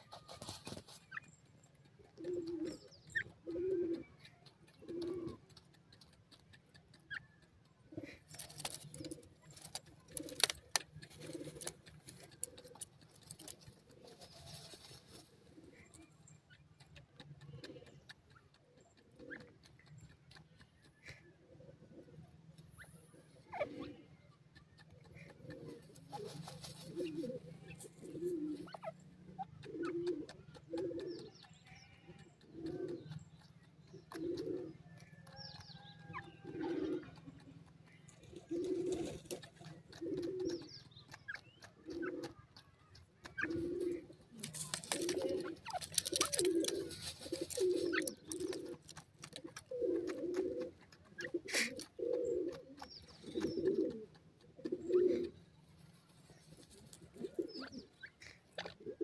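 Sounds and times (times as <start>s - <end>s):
rustling in loose dirt: 0.0s - 3.4s, 8.0s - 16.0s, 25.0s - 29.0s, 37.9s - 42.3s, 43.2s - 59.0s
bird cooing: 1.9s - 5.6s, 7.1s - 16.2s, 16.8s - 18.1s, 18.8s - 20.0s, 21.0s - 33.3s, 33.9s - 55.4s, 56.4s - 59.0s.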